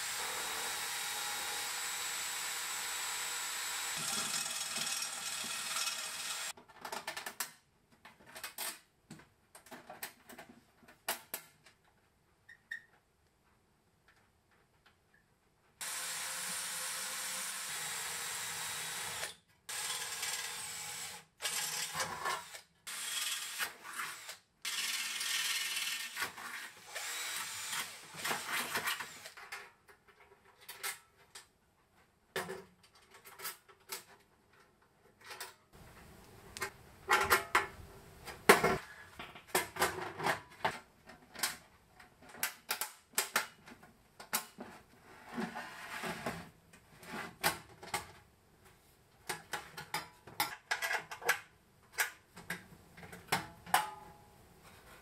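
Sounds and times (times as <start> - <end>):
cordless drill boring into steel: 0.0 - 6.5, 15.8 - 26.2, 26.8 - 29.4.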